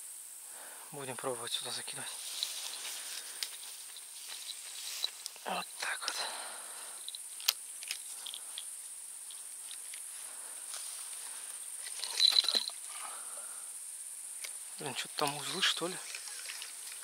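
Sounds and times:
insects chirring: 0:00.0 - 0:17.0
rattle of ticks: 0:01.5 - 0:13.2, 0:13.8 - 0:17.0.

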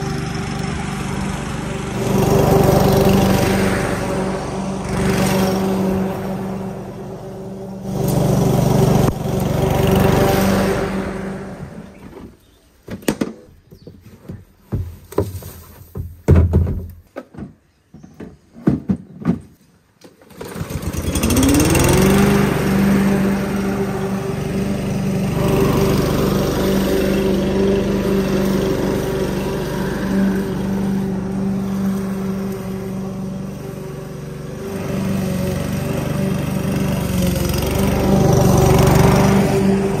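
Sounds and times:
lawn mower engine running: 0:00.0 - 0:12.5, 0:20.2 - 0:40.0
lawn mower clunks and rattles: 0:00.0 - 0:40.0.

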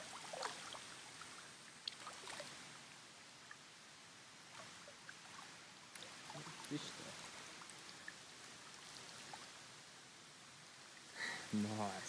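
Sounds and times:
shallow water splashing: 0:00.0 - 0:03.6, 0:04.4 - 0:09.9
flowing water hiss: 0:00.0 - 0:12.0.

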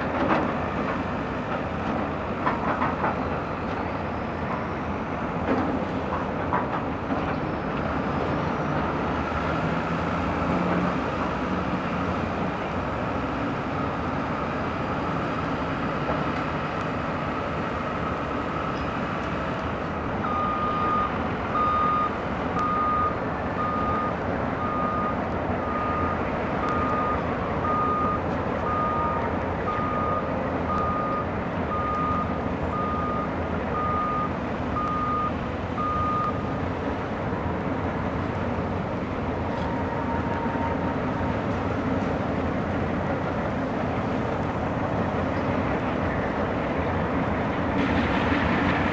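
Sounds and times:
diesel locomotives running: 0:00.0 - 0:48.9
reversing alarm beeping: 0:20.2 - 0:36.4.

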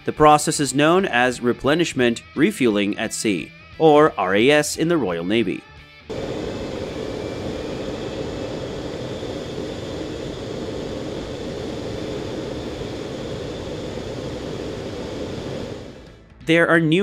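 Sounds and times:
faint high whine: 0:06.1 - 0:16.2
jet engine and rushing air: 0:06.1 - 0:16.2.

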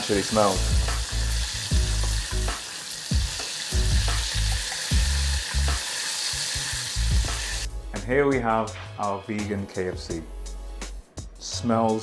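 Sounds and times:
deep-frying sizzle: 0:00.0 - 0:07.7.

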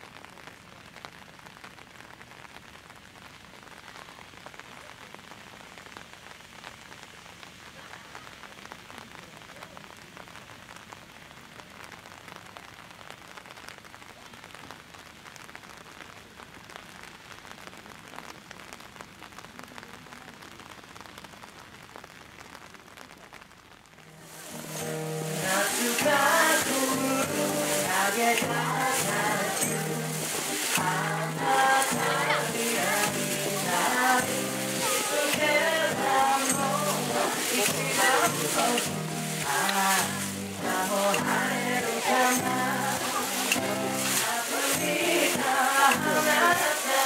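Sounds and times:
steady rain falling: 0:00.0 - 0:47.0.

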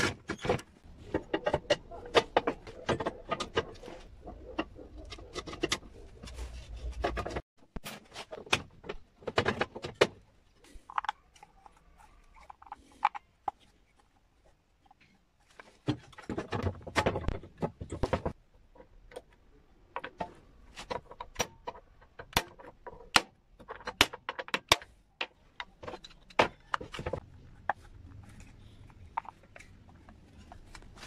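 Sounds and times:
metal linkage clicking and clattering: 0:00.0 - 0:07.4.

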